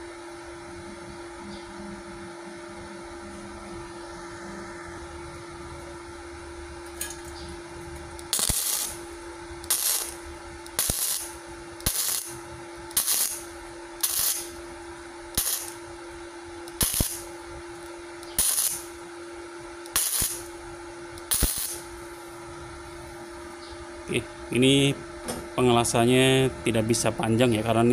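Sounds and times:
steady hum: 0.0 - 27.9
welding arc crackling: 8.0 - 19.2, 19.8 - 22.2.

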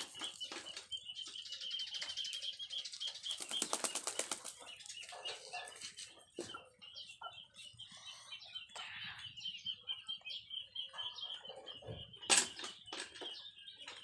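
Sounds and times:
high fluttering chirping: 0.0 - 6.2.

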